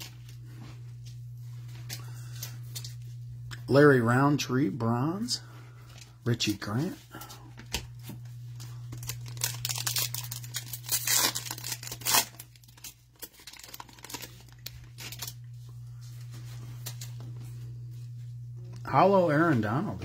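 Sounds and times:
foil pack tearing and crinkling: 0:00.0 - 0:00.3, 0:08.6 - 0:15.5, 0:16.7 - 0:17.3
steady low hum: 0:00.0 - 0:20.0.

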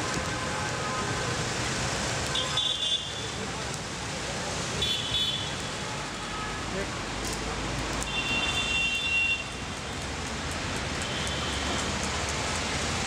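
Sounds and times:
roadside traffic noise: 0:00.0 - 0:13.0.

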